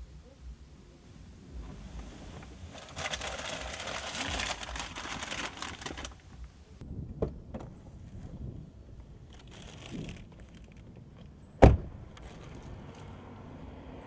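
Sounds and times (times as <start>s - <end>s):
quiet shuffling: 0.2s - 6.8s
rustling and clicking inside car: 1.5s - 8.4s, 9.0s - 11.4s, 12.1s - 13.2s.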